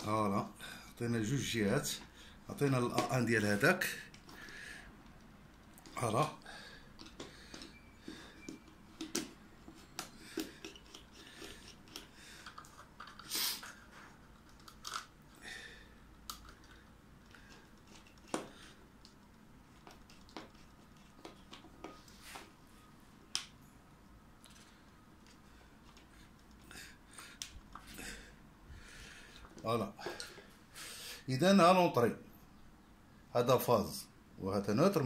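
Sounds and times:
screwdriver clicking and scraping: 0:08.4 - 0:13.3, 0:16.3 - 0:18.5.

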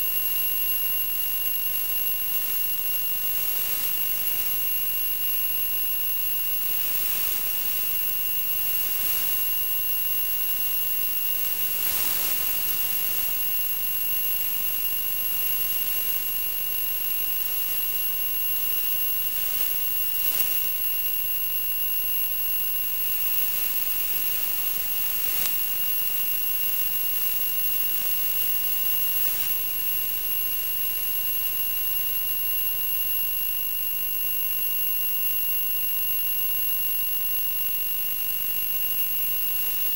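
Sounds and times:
steady hiss: 0:01.1 - 0:32.4.

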